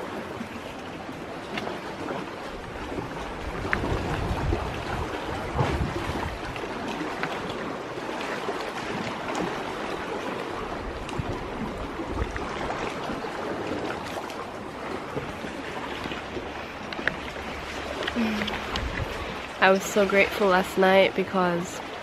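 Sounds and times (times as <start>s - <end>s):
waves lapping on rocky shore: 0.0s - 22.0s
low rumbles on microphone: 3.3s - 6.6s, 15.0s - 19.6s.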